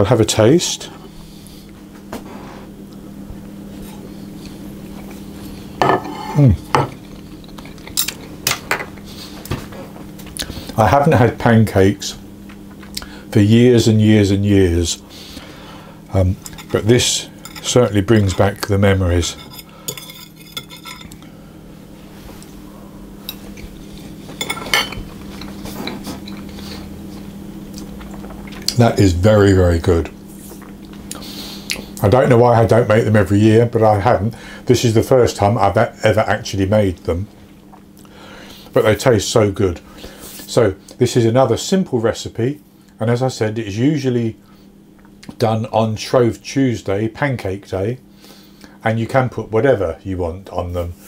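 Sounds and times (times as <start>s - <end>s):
steady low hum: 0.0s - 51.0s
man eating: 3.7s - 10.8s, 12.5s - 13.2s, 22.2s - 28.9s, 30.1s - 32.0s, 37.3s - 38.8s.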